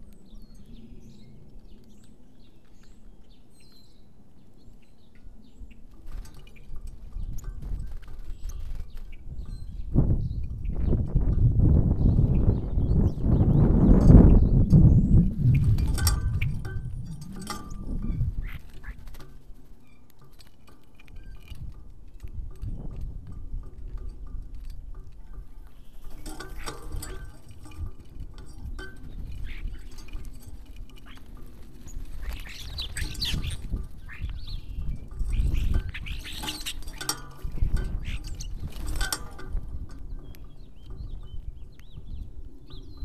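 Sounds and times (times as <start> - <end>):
birds chirping: 0.0 - 43.0
light clicks and pattering: 0.0 - 43.0.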